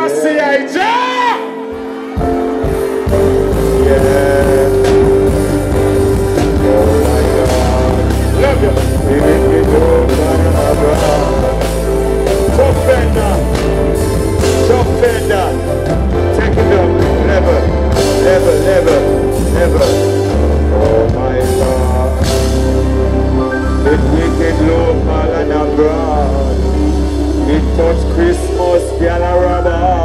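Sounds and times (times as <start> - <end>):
reggae band playing: 0.0 - 30.0
person singing: 2.4 - 30.0.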